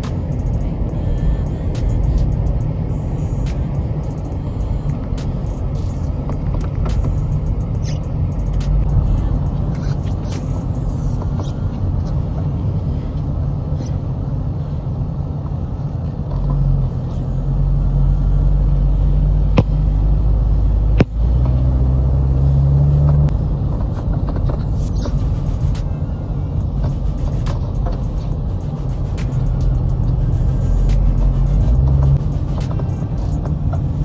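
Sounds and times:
car road noise rumble: 0.0 - 34.0
sharp clicks: 3.4 - 9.0.

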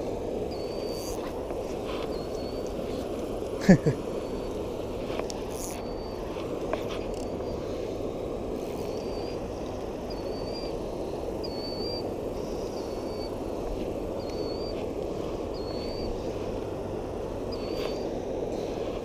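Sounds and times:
flowing river water: 0.0 - 19.0
bird high wavering call: 0.5 - 3.1, 4.1 - 8.0, 8.6 - 16.5, 17.4 - 18.2.

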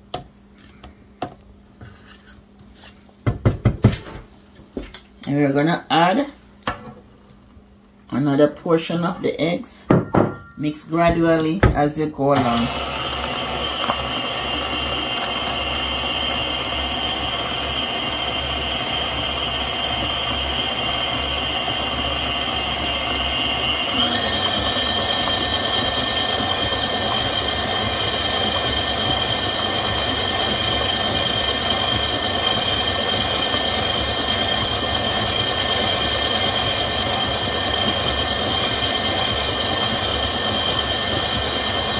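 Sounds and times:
stand mixer motor whine: 12.4 - 41.9.

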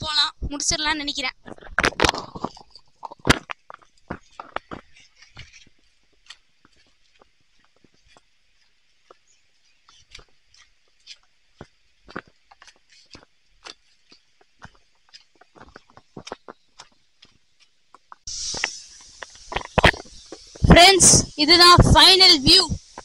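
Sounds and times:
footsteps on stone path: 1.3 - 20.7
faint high hiss: 18.2 - 23.0.

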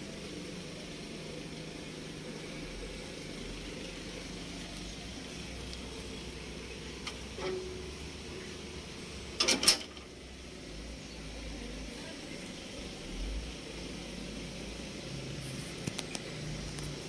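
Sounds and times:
steady background hum: 0.0 - 17.0
metal engine hood shutting: 9.2 - 10.2.

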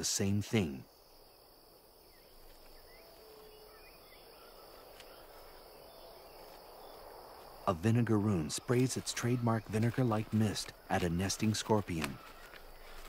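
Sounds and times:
low hiss: 0.0 - 4.4
crickets and insects trilling: 0.0 - 13.0.

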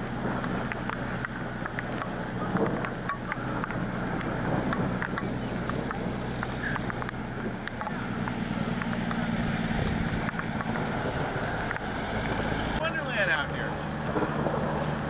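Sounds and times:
truck engine hum: 0.0 - 15.0
tyres hissing through slush: 0.0 - 15.0
wind on microphone: 0.0 - 15.0.

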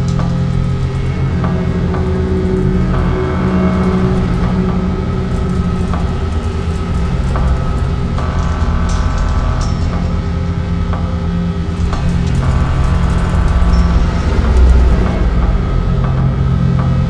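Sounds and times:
grainy rumbling noise: 0.0 - 17.0
low electronic drones: 0.0 - 17.0.

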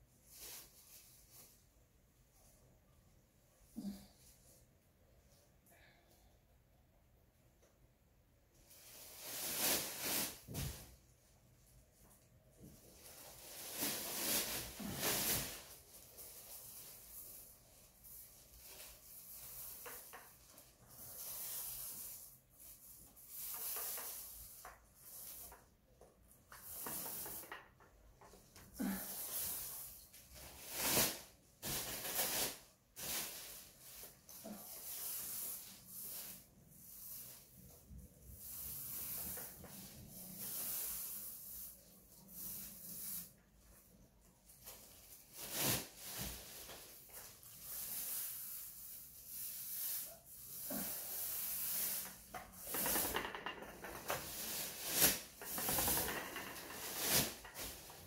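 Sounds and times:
paint roller rubbing strokes: 14.1 - 27.9, 33.6 - 43.4, 47.0 - 58.0.

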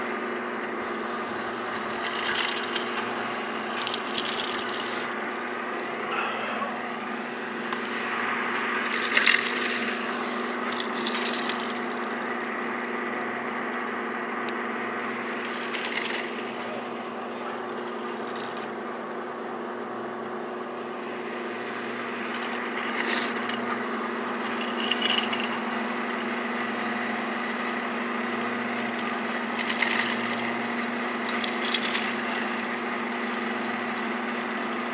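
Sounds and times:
motor hum with even tones: 0.0 - 34.9
short scraping sounds: 7.8 - 11.4.

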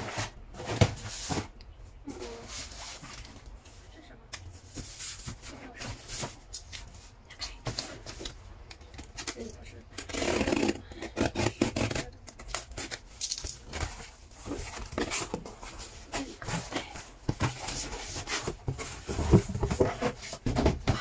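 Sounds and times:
cardboard box rustling and scraping: 4.6 - 7.2, 9.2 - 21.0.

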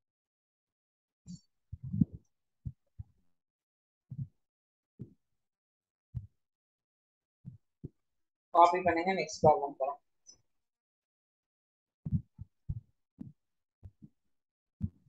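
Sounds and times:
soft low thuds: 12.0 - 13.3.

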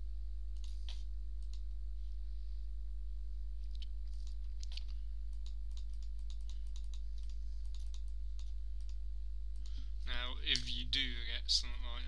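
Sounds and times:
low electrical hum: 0.0 - 12.0
mouse and keyboard clicks: 0.6 - 1.6, 3.7 - 9.0.

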